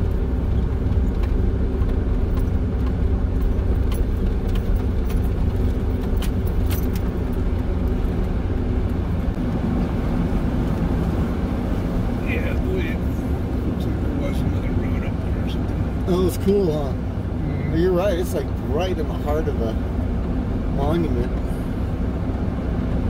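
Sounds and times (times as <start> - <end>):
vehicle engine and road rumble: 0.0 - 23.0
light clicks and rattles: 0.6 - 9.0.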